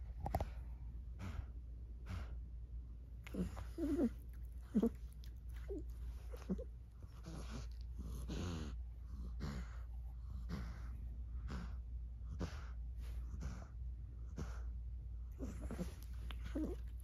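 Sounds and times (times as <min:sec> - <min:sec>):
cat snorting gasps: 0:00.4 - 0:02.4, 0:03.2 - 0:06.6, 0:07.2 - 0:14.7.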